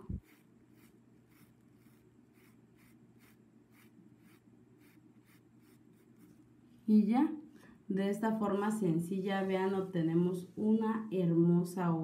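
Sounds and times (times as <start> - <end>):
paintbrush strokes on fabric: 0.0 - 6.8
low steady hum: 0.0 - 12.0.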